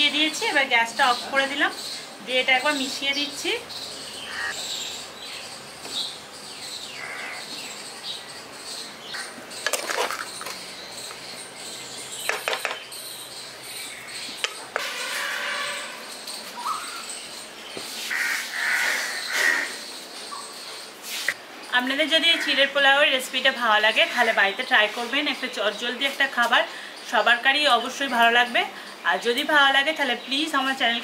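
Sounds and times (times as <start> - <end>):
birds chirping: 0.0 - 31.0
spatula scraping frying pan: 14.8 - 15.9.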